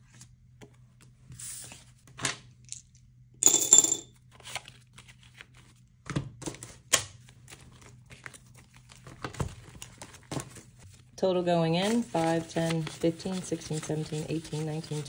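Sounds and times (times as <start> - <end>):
paper cards rustling: 4.4 - 5.8, 6.6 - 15.0.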